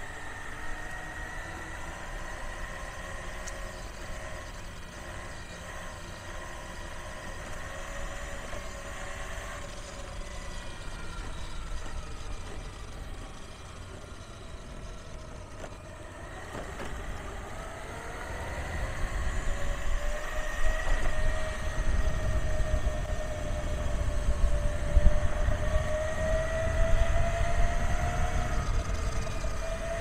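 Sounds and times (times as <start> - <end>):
gear drive whining: 0.0 - 30.0
wheels rumbling on pavement: 0.0 - 30.0.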